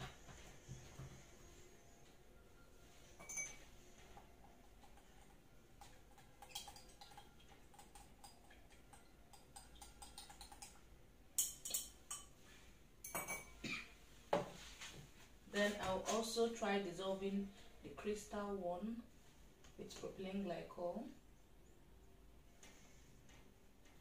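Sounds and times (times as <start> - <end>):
glass beakers and spatula clinking: 3.1 - 3.7, 11.4 - 12.3, 13.0 - 13.6.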